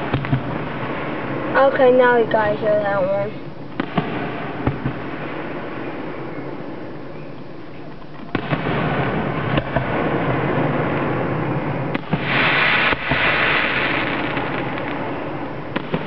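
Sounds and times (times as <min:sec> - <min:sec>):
fireworks bursting: 0:00.0 - 0:16.0
loud hissing firework burst: 0:08.2 - 0:16.0.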